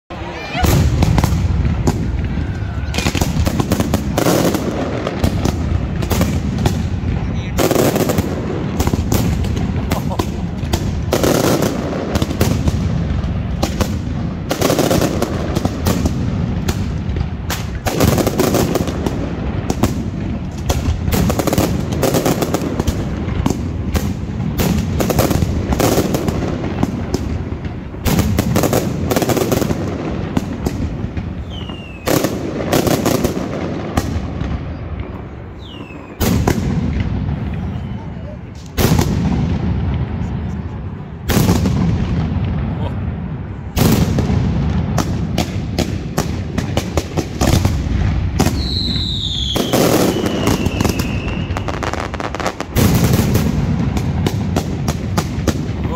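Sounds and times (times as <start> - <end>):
firecrackers banging: 0.1 - 55.9
short falling whistles: 31.4 - 32.1, 35.6 - 36.2.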